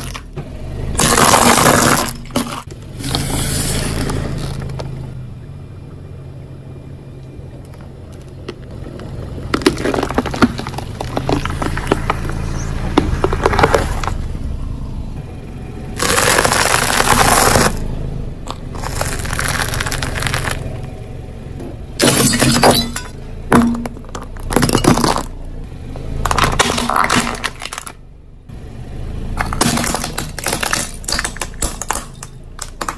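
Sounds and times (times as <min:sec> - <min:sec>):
crunching and cracking: 0:01.0 - 0:02.7, 0:07.6 - 0:14.2, 0:16.0 - 0:17.8, 0:18.5 - 0:20.8, 0:26.2 - 0:28.0, 0:29.4 - 0:32.9
tyre crushing objects: 0:01.0 - 0:03.2, 0:08.4 - 0:14.2, 0:16.0 - 0:17.8, 0:29.4 - 0:32.9.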